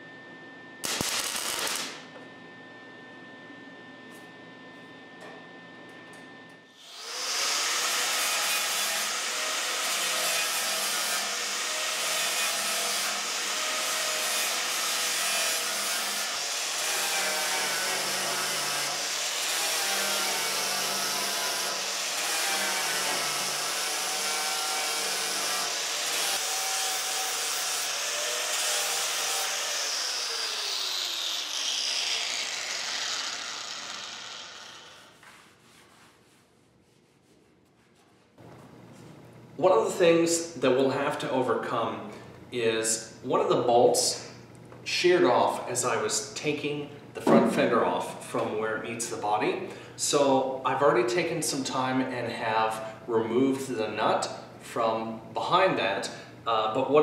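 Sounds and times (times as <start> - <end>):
angle grinder grinding metal: 0.8 - 2.0, 6.8 - 35.2.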